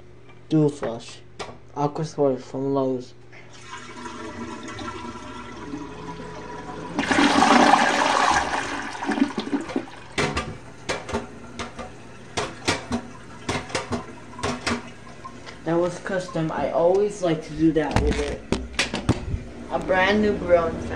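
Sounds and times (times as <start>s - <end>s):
toilet flushing: 3.4s - 16.8s
water trickling: 8.4s - 16.9s.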